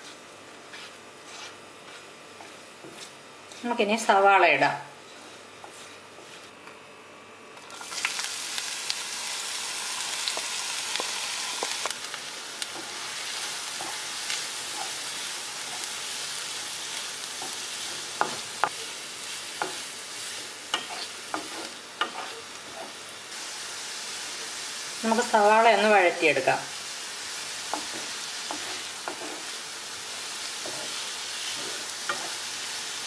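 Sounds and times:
spatula knocking and scraping pan: 0.0s - 3.8s, 5.1s - 6.5s, 17.4s - 18.9s, 19.5s - 23.0s, 27.7s - 29.6s, 30.6s - 32.4s
onions sizzling in oil: 7.6s - 33.0s.

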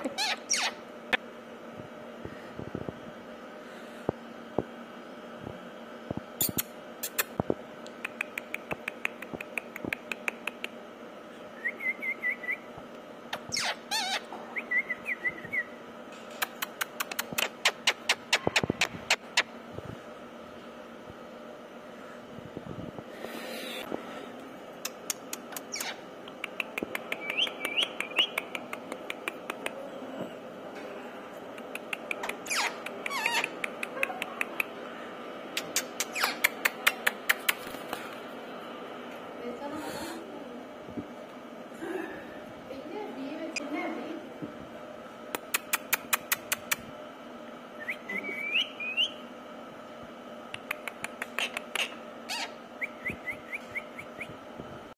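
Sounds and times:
parakeet chirps: 0.2s - 0.8s, 13.3s - 15.7s, 25.6s - 26.0s, 32.3s - 33.6s, 35.6s - 36.7s, 51.3s - 54.3s
parakeet squeak: 0.2s - 0.8s, 13.3s - 14.3s, 25.7s - 26.0s, 32.4s - 33.6s, 36.0s - 36.5s, 51.4s - 52.6s
parakeet sharp clicks: 6.4s - 10.8s, 24.8s - 29.8s, 45.3s - 46.8s, 50.5s - 52.0s.

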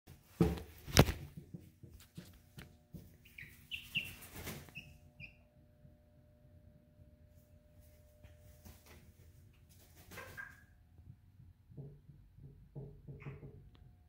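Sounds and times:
hen chirping: 3.2s - 5.5s.

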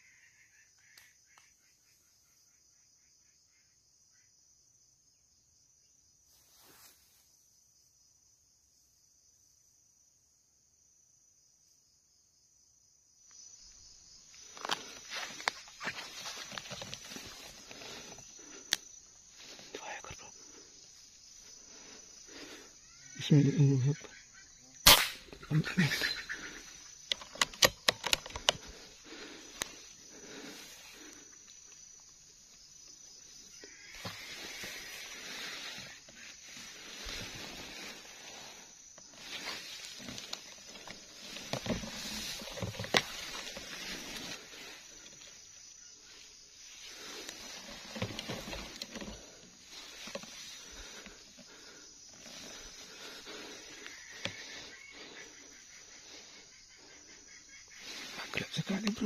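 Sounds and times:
high-pitched insect drone: 13.3s - 59.0s
rustling leaves and undergrowth: 13.5s - 23.0s, 25.3s - 56.5s, 57.6s - 59.0s
sharp clicks: 27.1s - 28.7s.

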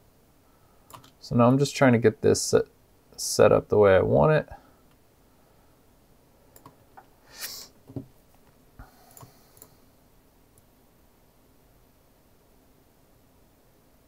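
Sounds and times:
soft hiss: 0.0s - 14.0s
computer mouse clicks: 0.9s - 1.2s, 6.5s - 7.1s, 9.1s - 9.8s.

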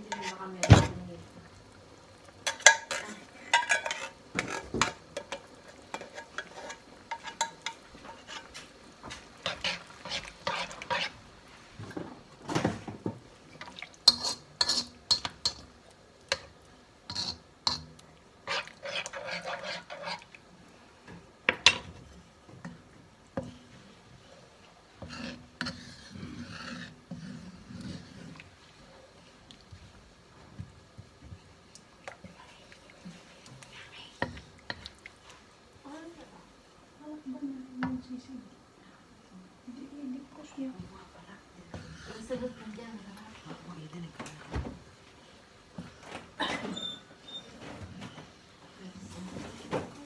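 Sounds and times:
spatula scraping a metal wok: 0.0s - 0.9s, 2.4s - 11.2s, 14.0s - 15.7s, 17.1s - 20.4s, 25.0s - 28.5s
light sizzle: 0.0s - 50.0s.

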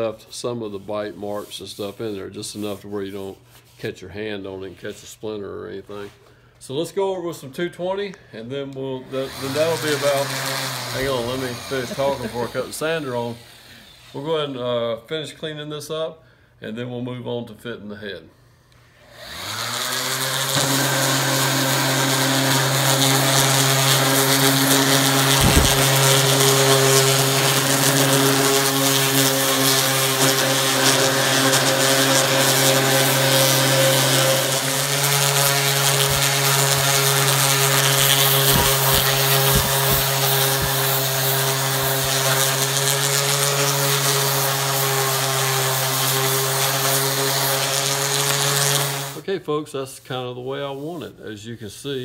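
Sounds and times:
orbital sander sanding wood: 0.0s - 3.8s, 9.0s - 14.6s, 19.0s - 49.2s.

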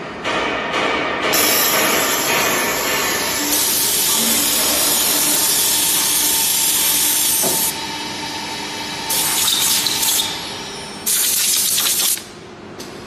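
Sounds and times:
drilling machine hissing: 1.4s - 7.8s.

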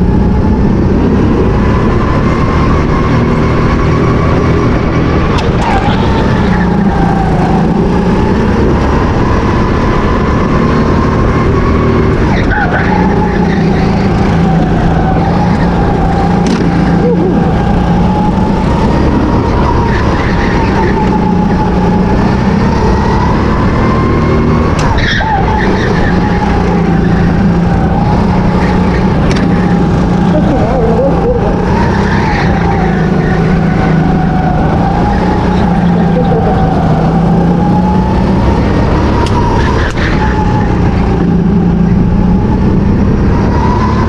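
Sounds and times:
go-kart engine running hard: 0.0s - 44.0s.

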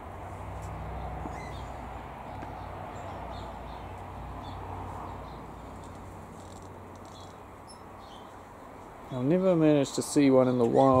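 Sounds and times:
faint bird chirps and calls: 1.0s - 1.8s, 2.5s - 8.4s.

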